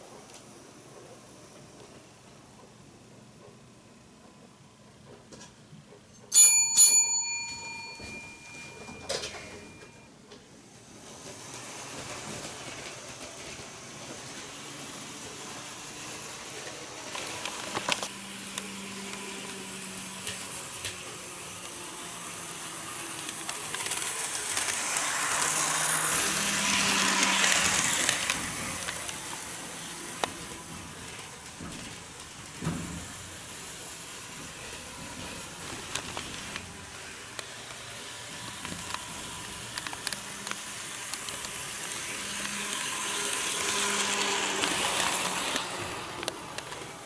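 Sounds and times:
metal wheels hissing on rail: 0:10.7 - 0:47.0
wheels clicking over rail joints: 0:16.5 - 0:47.0.

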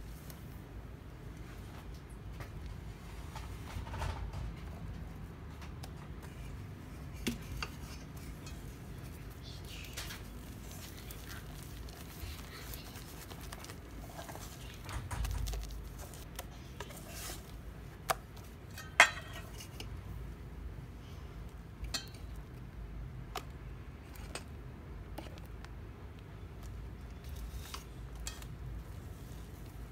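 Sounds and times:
whisk scraping and swishing: 0:15.8 - 0:17.6.

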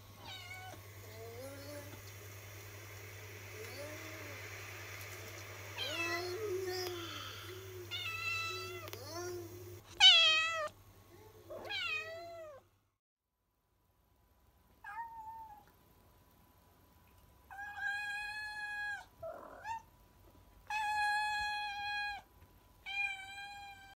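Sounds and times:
cat meowing: 0:00.2 - 0:00.8, 0:07.9 - 0:08.9, 0:09.9 - 0:10.7, 0:11.6 - 0:12.6, 0:22.9 - 0:23.9
cats yowling: 0:07.8 - 0:09.0, 0:09.9 - 0:10.7, 0:11.5 - 0:12.6, 0:17.5 - 0:19.9, 0:22.9 - 0:24.0.

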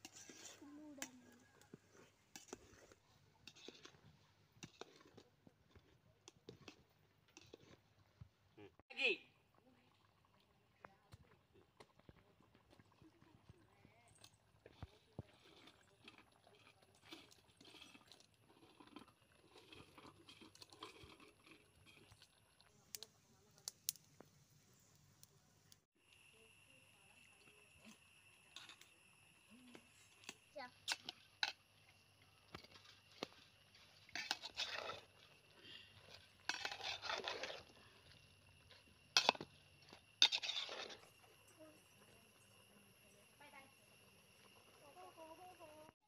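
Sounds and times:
ladle scraping through noodles: 0:00.0 - 0:07.8, 0:14.2 - 0:22.6, 0:30.8 - 0:41.4
dry noodles crunching and rustling: 0:32.4 - 0:41.0.

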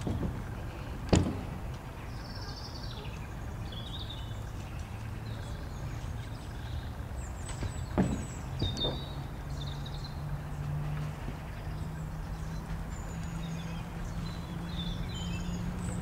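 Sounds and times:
bird chirping: 0:00.0 - 0:16.0
thump: 0:01.1 - 0:01.6, 0:07.6 - 0:09.1.

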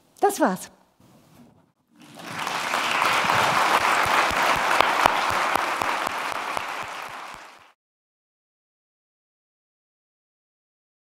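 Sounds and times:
audience applauding: 0:02.0 - 0:07.8.

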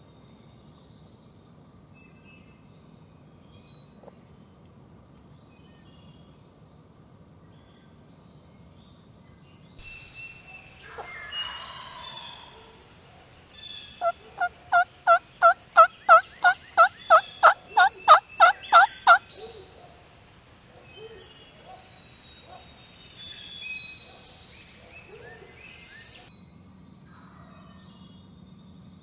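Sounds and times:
turkey yelps: 0:10.8 - 0:12.8, 0:14.0 - 0:19.7.

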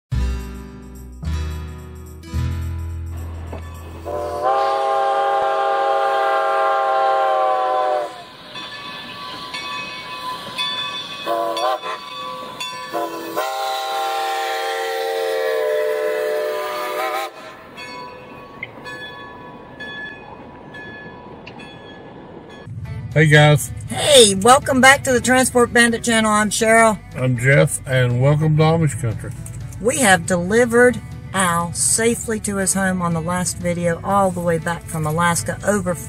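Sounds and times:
train horn blasts: 0:03.6 - 0:08.4, 0:11.2 - 0:17.7.

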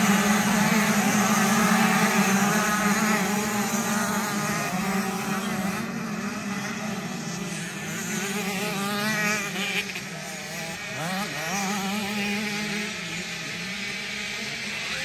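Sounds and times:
motocross bike engines revving: 0:00.0 - 0:15.0.

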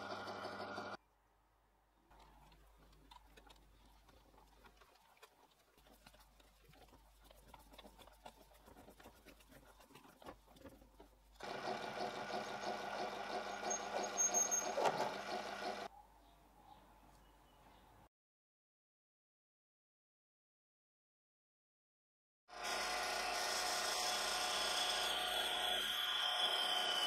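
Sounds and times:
lathe motor humming: 0:00.0 - 0:01.0, 0:11.4 - 0:15.9.

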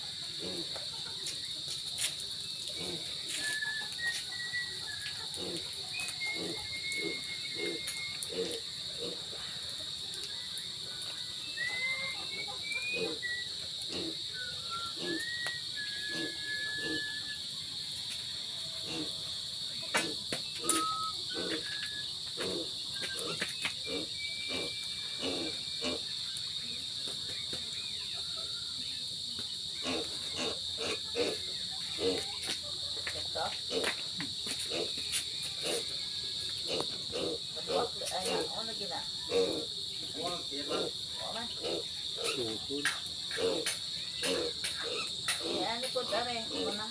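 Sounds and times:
insects droning: 0:00.0 - 0:46.9
bird whistling: 0:03.3 - 0:05.3, 0:05.9 - 0:08.3, 0:11.4 - 0:13.7, 0:14.3 - 0:17.4, 0:20.4 - 0:22.2, 0:22.9 - 0:25.7.

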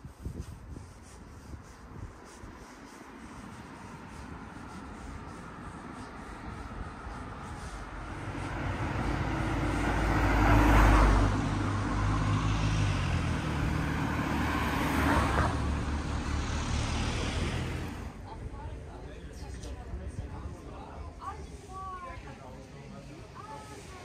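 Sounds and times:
cars driving past: 0:02.7 - 0:19.2.

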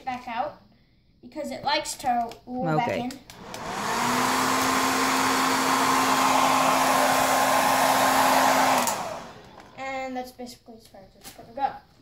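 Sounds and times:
hair dryer running: 0:03.3 - 0:09.8.

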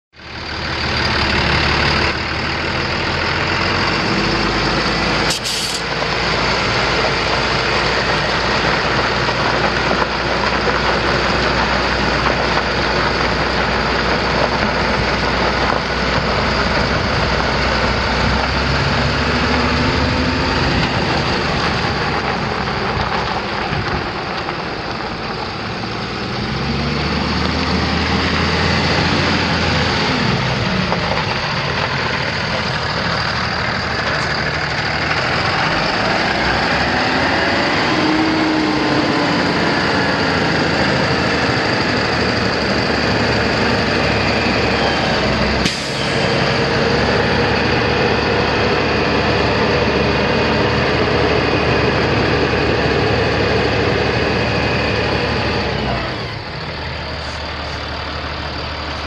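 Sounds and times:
diesel truck engine running: 0:00.2 - 0:59.0
air brake hiss: 0:05.3 - 0:05.9, 0:45.6 - 0:46.4.

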